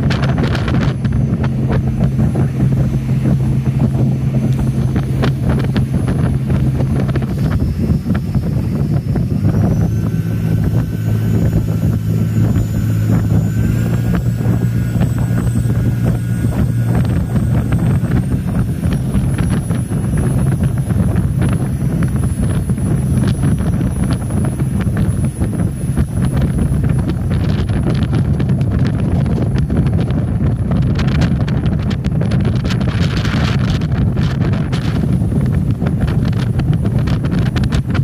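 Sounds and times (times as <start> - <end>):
thin high whine: 0.0 - 28.2
boat engine droning: 0.0 - 38.0
water rushing past hull: 0.0 - 38.0
wind buffeting microphone: 0.0 - 38.0.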